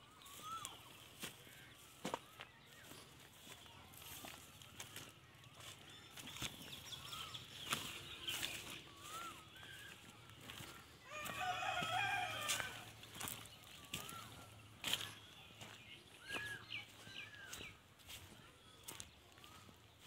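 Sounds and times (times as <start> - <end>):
footsteps through grass: 0.0 - 20.0
small birds chirping: 0.0 - 20.0
rooster crowing: 11.0 - 13.0.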